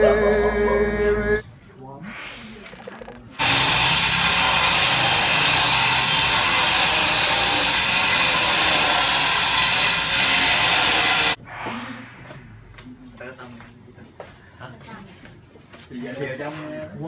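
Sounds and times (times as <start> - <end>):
power tool grinding marble: 3.4 - 11.4.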